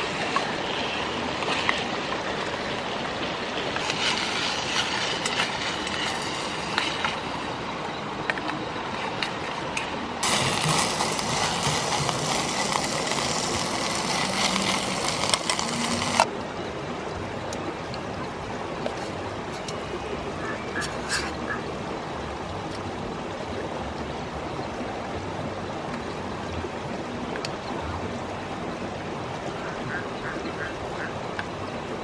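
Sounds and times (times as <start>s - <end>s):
gas stove hiss: 10.2s - 16.3s
meat sizzling in a pot: 10.2s - 16.3s.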